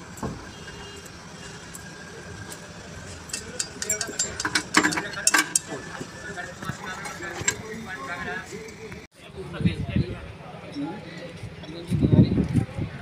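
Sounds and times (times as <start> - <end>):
steel tools clanking on metal: 3.0 - 7.8.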